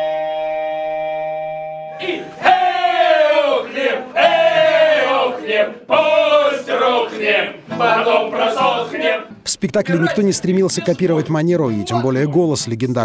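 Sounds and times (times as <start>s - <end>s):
voices shouting in chorus: 2.0s - 9.3s.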